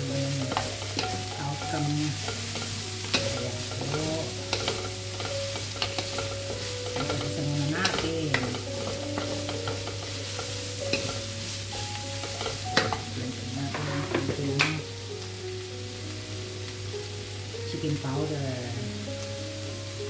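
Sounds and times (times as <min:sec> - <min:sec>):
utensil scraping against pan: 0:00.0 - 0:13.1
food sizzling in a pan: 0:00.0 - 0:20.0.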